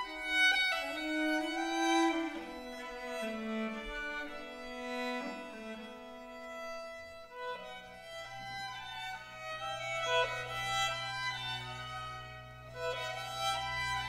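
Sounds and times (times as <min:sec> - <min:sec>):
solo violin fiddle tune: 0:00.0 - 0:14.0.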